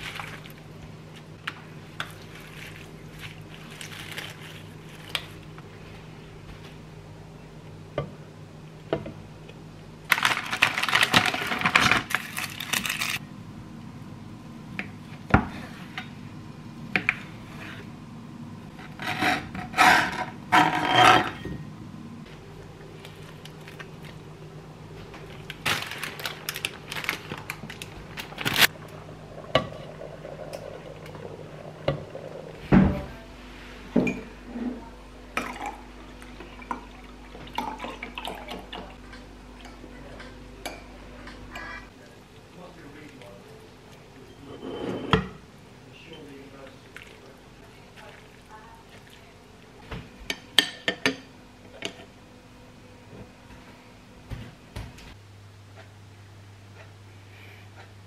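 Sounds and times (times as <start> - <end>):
plastic packaging crinkling: 2.2 - 5.4, 10.1 - 13.2, 25.2 - 28.7
steady low hum: 11.4 - 58.0.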